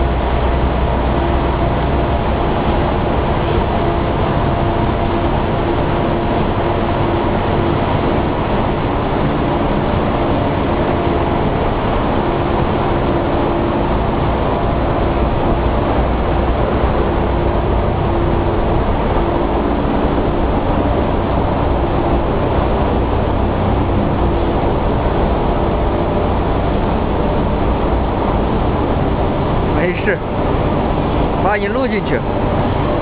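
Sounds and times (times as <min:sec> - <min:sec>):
paper machine industrial drone: 0:00.0 - 0:33.0.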